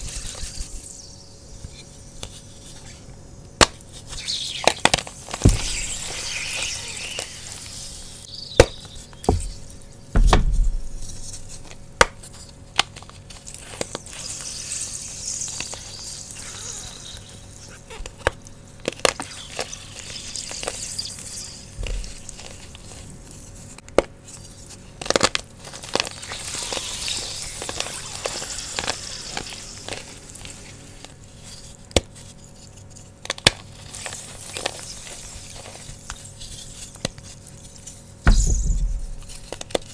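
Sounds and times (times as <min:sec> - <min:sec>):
wet chalk hissing sizzle: 0:00.0 - 0:10.1, 0:10.8 - 0:24.9, 0:25.6 - 0:39.9
dull thumps of blocks: 0:05.4 - 0:06.0, 0:08.6 - 0:11.2, 0:38.3 - 0:39.3.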